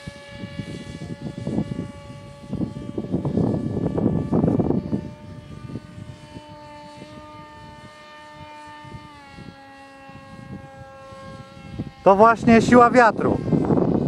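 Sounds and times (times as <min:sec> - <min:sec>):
model airplane motor whining: 0:00.0 - 0:14.0
wind rumble on microphone: 0:00.0 - 0:14.0.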